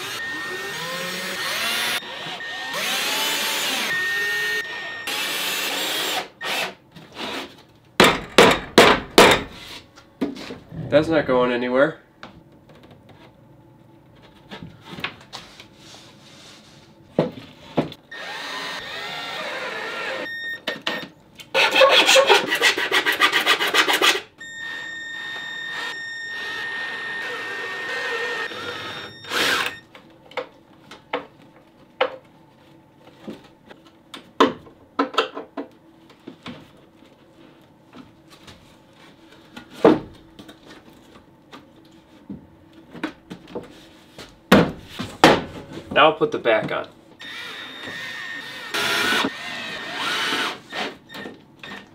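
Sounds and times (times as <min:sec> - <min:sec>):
cordless drill driving screws: 0:00.0 - 0:06.7, 0:18.2 - 0:20.3, 0:25.7 - 0:29.8, 0:47.2 - 0:50.9.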